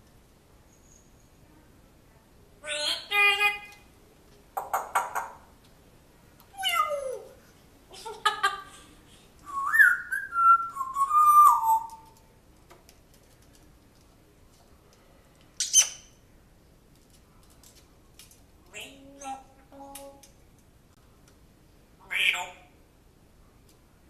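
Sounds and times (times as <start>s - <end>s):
parrot calling: 6.5s - 7.4s, 9.5s - 12.1s, 22.0s - 22.7s
parrot squawking: 6.6s - 7.4s, 22.1s - 22.7s
parrot whistling: 9.5s - 12.0s.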